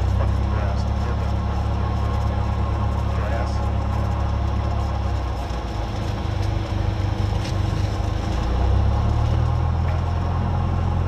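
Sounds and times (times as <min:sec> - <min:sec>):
airplane engine humming: 0:00.0 - 0:11.0.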